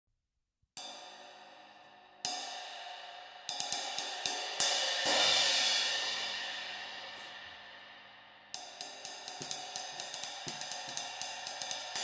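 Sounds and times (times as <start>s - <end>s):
ride cymbal struck with drumstick: 2.2s - 7.4s, 8.5s - 12.0s.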